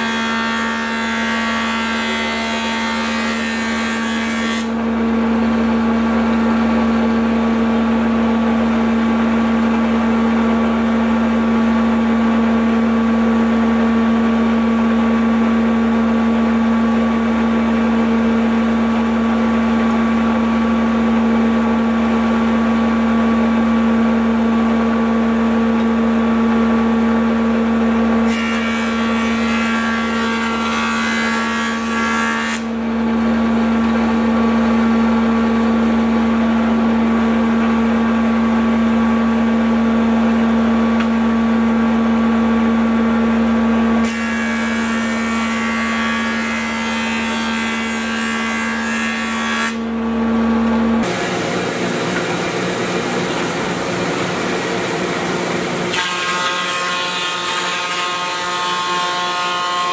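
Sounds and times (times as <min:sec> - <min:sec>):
jointer cutting wood: 0:00.0 - 0:07.7, 0:28.1 - 0:35.7, 0:44.0 - 0:50.0, 0:51.0 - 0:59.9
thickness planer running: 0:00.0 - 0:59.9
jointer humming: 0:50.6 - 0:59.9.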